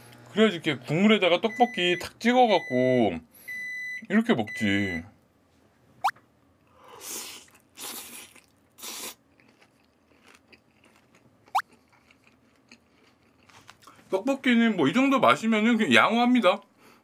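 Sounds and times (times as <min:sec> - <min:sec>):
person chewing: 0:06.6 - 0:14.0.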